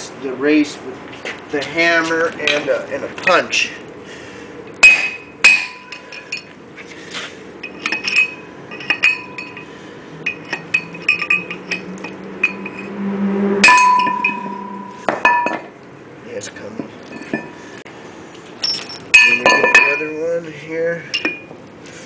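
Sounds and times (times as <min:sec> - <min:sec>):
hammer striking steel punch: 0:04.8 - 0:06.0, 0:13.6 - 0:15.7.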